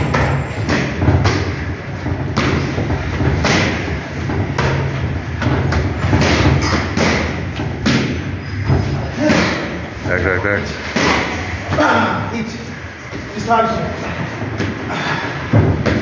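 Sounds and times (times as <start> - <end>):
kicks thudding on pads: 0.0 - 9.7.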